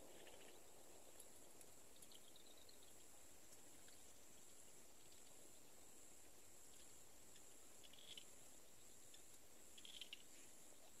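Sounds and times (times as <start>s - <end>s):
high insect-like hiss: 0.0s - 11.0s.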